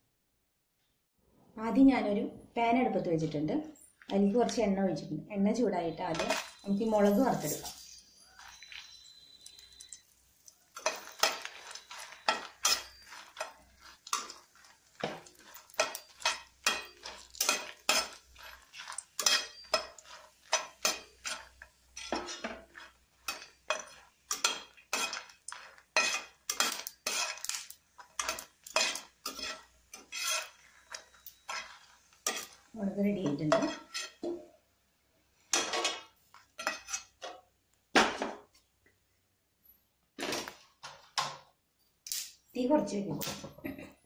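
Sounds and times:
chillies frying in oil: 0:05.4 - 0:38.5
utensil scraping frying pan: 0:06.0 - 0:34.5, 0:35.4 - 0:37.5.

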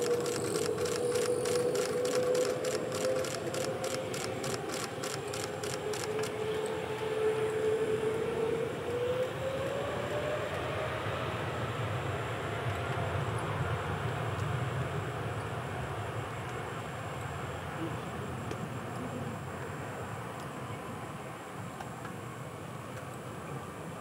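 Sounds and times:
fast high ticking: 0:00.0 - 0:06.3
jet engines rumbling and whining: 0:00.0 - 0:24.0.

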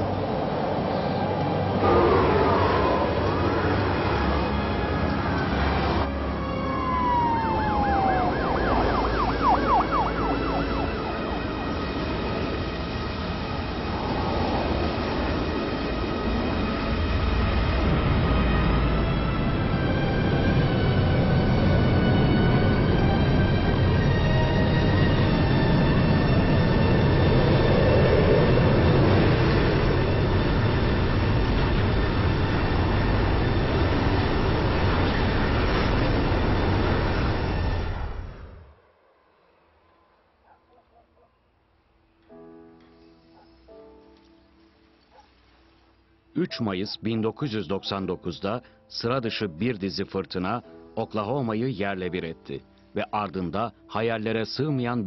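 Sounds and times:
tornado wind rumble: 0:00.0 - 0:06.1, 0:06.7 - 0:39.8
siren wailing and yelping: 0:01.8 - 0:11.9.

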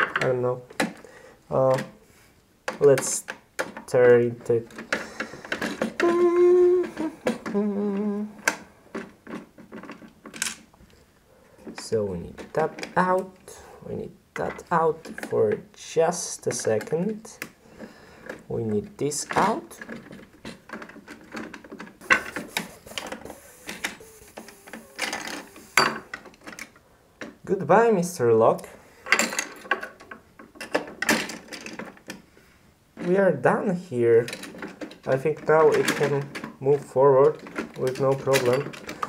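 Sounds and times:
plastic parts clicking: 0:02.6 - 0:10.7, 0:11.6 - 0:13.4, 0:18.2 - 0:27.4, 0:34.2 - 0:39.0
man humming: 0:05.1 - 0:08.6, 0:22.0 - 0:25.8
screwdriver working: 0:22.0 - 0:26.2.

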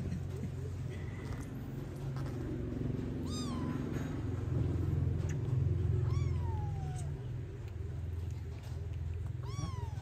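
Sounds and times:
steady low hum: 0:00.0 - 0:10.0
kitten meowing: 0:03.2 - 0:03.9, 0:06.0 - 0:07.2, 0:09.3 - 0:10.0.

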